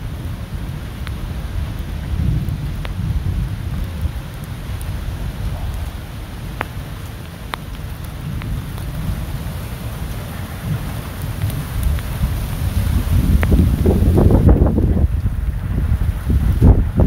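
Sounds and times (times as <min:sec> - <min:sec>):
rain hissing: 0:00.0 - 0:17.0
thunder rumbling: 0:00.0 - 0:17.0.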